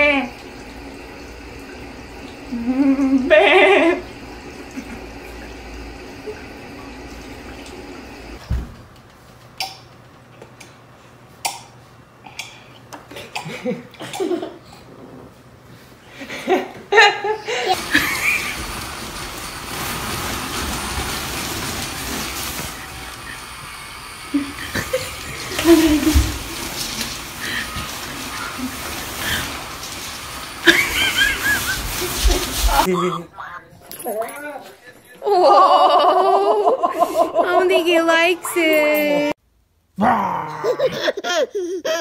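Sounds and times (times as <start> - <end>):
blower fan rushing hiss: 0.0 - 40.0.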